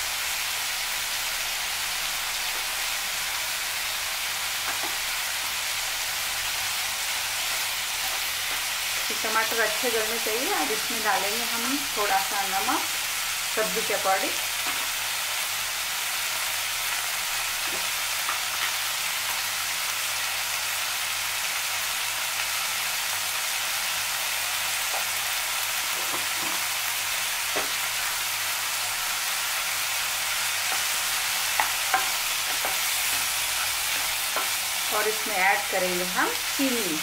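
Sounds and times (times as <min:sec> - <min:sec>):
vegetables sizzling in frying pan: 0:00.0 - 0:37.0
wooden spatula knocking: 0:31.5 - 0:34.6.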